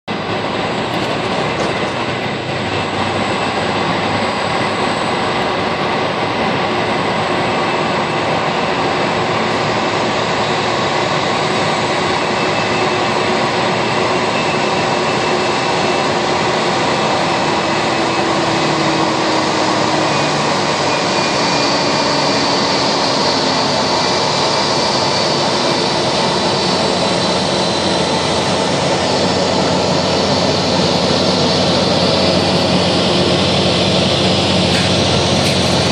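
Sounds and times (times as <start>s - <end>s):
jet engines idling: 0.1s - 35.9s.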